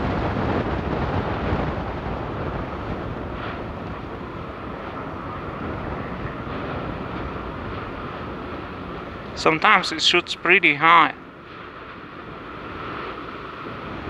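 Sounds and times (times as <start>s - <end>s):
lava spattering rushing rumble: 0.0s - 10.3s.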